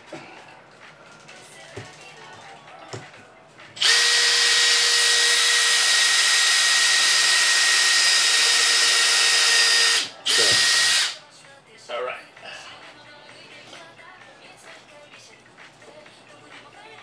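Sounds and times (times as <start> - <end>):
electric power tool motor: 3.8 - 11.2.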